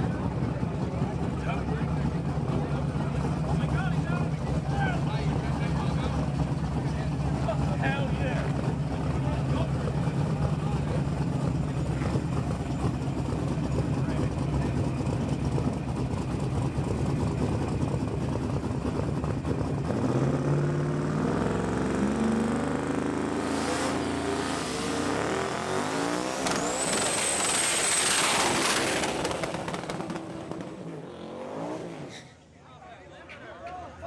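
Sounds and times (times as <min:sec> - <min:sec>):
truck engine revving: 0:18.7 - 0:32.2
tires squealing: 0:23.5 - 0:30.8, 0:31.6 - 0:32.5.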